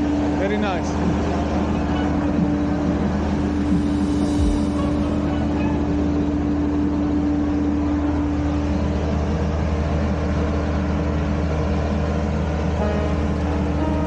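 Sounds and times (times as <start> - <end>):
heavy vehicle engine idling: 0.0 - 14.0
faint musical tones: 12.8 - 14.0.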